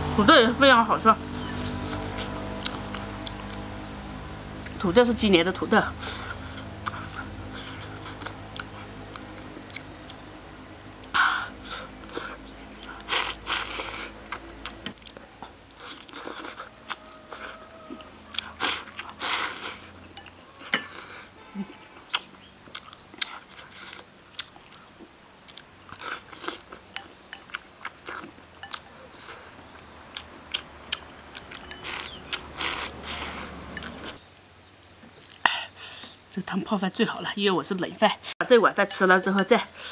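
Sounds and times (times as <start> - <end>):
person chewing and biting: 1.4 - 3.7, 6.0 - 10.2, 11.0 - 21.3, 22.0 - 34.2.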